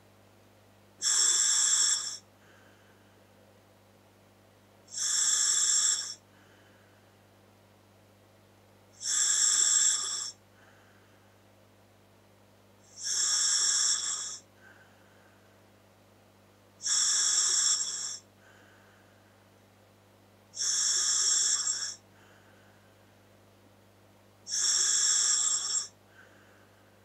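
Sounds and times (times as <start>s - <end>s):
regulator hissing on inhalation: 1.0s - 2.2s, 4.9s - 6.2s, 9.0s - 10.4s, 12.9s - 14.4s, 16.8s - 18.2s, 20.6s - 22.0s, 24.5s - 26.0s
faint exhale: 2.0s - 3.2s, 6.1s - 7.2s, 10.3s - 11.4s, 14.2s - 15.6s, 18.0s - 19.5s, 21.8s - 23.2s, 25.8s - 27.0s.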